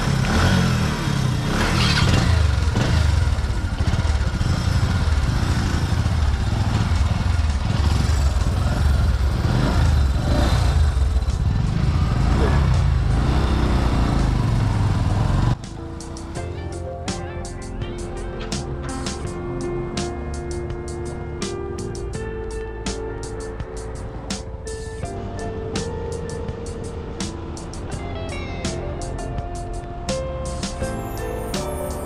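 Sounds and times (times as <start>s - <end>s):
motorcycle engine riding off: 0.0s - 16.4s.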